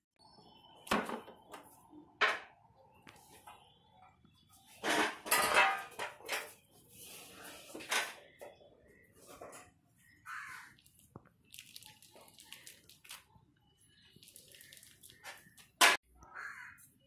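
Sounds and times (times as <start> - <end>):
plastic sheet crinkling: 10.8 - 13.4, 14.0 - 15.6.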